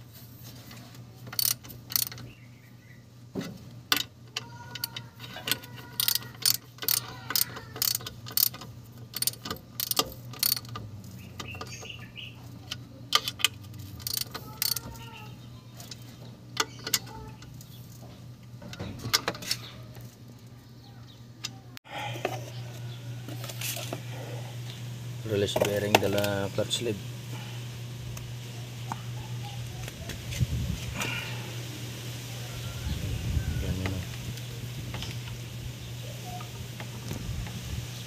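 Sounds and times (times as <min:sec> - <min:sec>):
steady low hum: 0:00.0 - 0:38.0
socket ratchet clicking: 0:01.3 - 0:02.2, 0:04.7 - 0:11.9, 0:12.7 - 0:15.0
birds chirping: 0:02.0 - 0:03.3, 0:11.1 - 0:13.1, 0:14.3 - 0:23.4, 0:24.0 - 0:30.3, 0:30.9 - 0:38.0.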